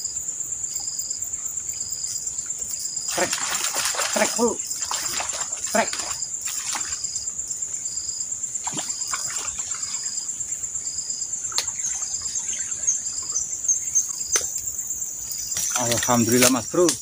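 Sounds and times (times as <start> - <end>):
insects chirping: 0.0 - 17.0
fish splashing at surface: 3.1 - 7.0.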